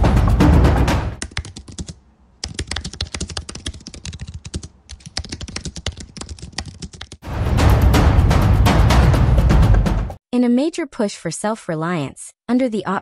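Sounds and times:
music: 0:00.0 - 0:01.2, 0:07.2 - 0:10.2
fast typing on keyboard: 0:01.2 - 0:07.2.

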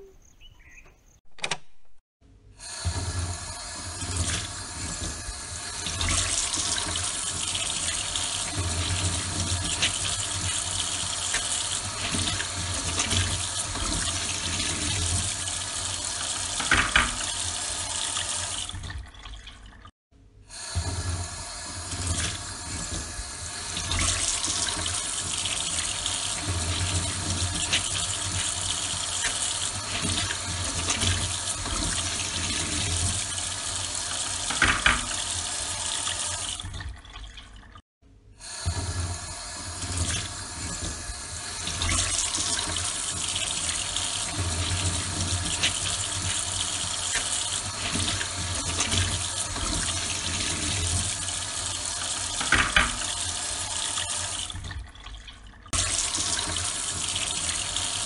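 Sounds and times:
pump humming: 0:02.6 - 0:18.6, 0:20.5 - 0:36.6
water spraying and splashing: 0:02.7 - 0:18.9, 0:20.6 - 0:36.7, 0:38.7 - 0:54.6, 0:55.7 - 0:58.0.

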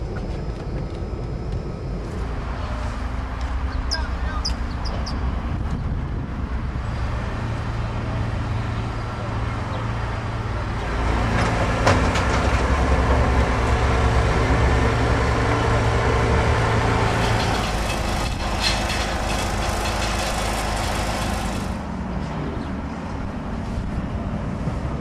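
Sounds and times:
heavy truck engine: 0:00.0 - 0:25.0.

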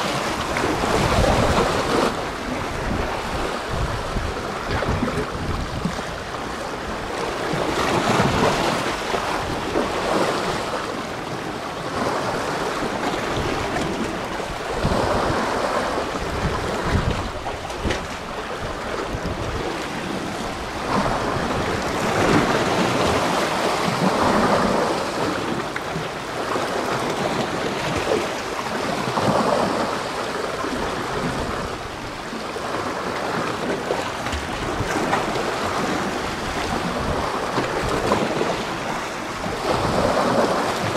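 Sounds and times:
wind gusting on microphone: 0:00.0 - 0:11.0, 0:12.3 - 0:25.6, 0:34.3 - 0:40.9
sea waves washing in: 0:00.0 - 0:40.9.

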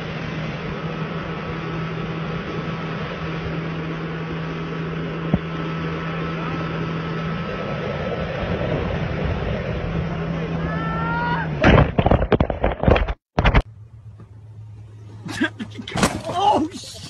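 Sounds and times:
water rushing along hull: 0:00.0 - 0:12.8
boat motor droning: 0:00.0 - 0:17.0.

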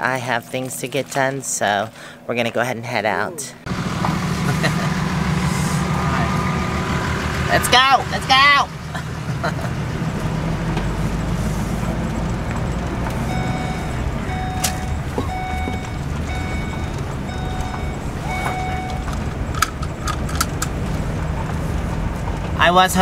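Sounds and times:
vehicle engine rumble: 0:03.5 - 0:23.0
short electronic beeps: 0:13.2 - 0:19.2.

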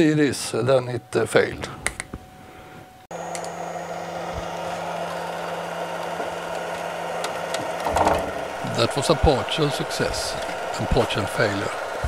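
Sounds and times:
stepper motor humming: 0:03.1 - 0:12.0.

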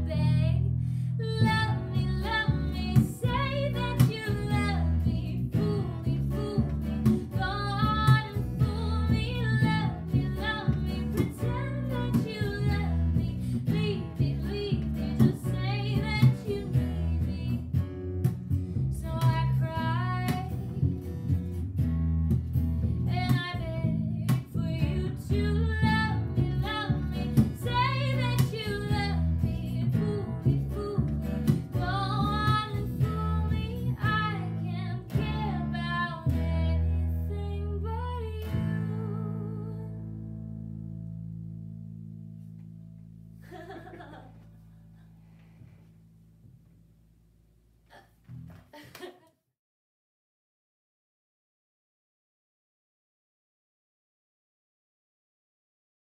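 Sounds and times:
woman singing: 0:00.0 - 0:17.8, 0:18.9 - 0:21.0, 0:23.0 - 0:40.2
plucked double bass: 0:00.0 - 0:45.0
acoustic guitar: 0:00.0 - 0:46.6.

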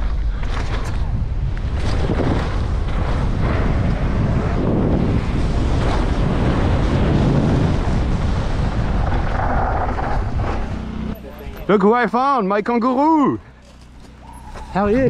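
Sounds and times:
wind buffeting microphone: 0:00.0 - 0:11.6, 0:14.2 - 0:15.0
tyres rolling over loose dirt: 0:01.7 - 0:11.9.

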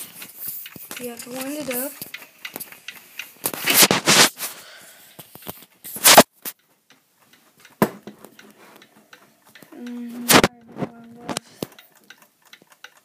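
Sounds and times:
sharp click: 0:05.3 - 0:06.6.

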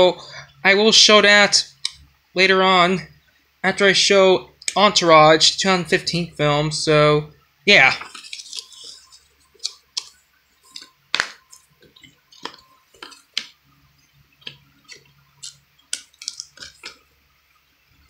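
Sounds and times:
plastic cases clicking: 0:10.7 - 0:13.6, 0:14.4 - 0:17.0.

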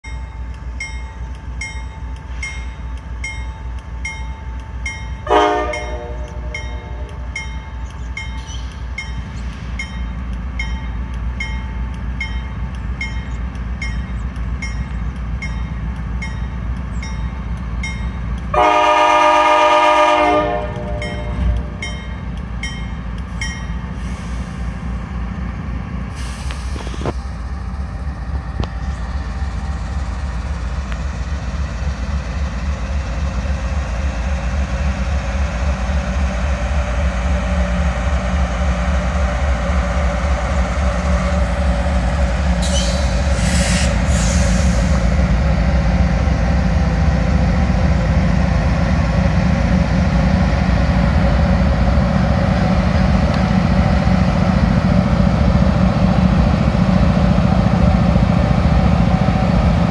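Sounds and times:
crossing bell dinging: 0:00.0 - 0:19.0, 0:19.7 - 0:23.9
diesel locomotives rumbling: 0:00.0 - 0:59.9
train horn blasts: 0:05.2 - 0:07.3, 0:18.5 - 0:21.8.

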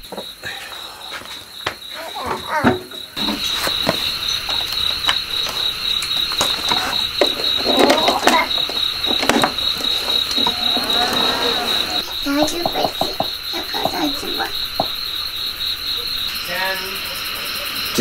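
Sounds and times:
crickets chirping: 0:00.0 - 0:18.0
equipment clicks and knocks: 0:02.7 - 0:10.6.

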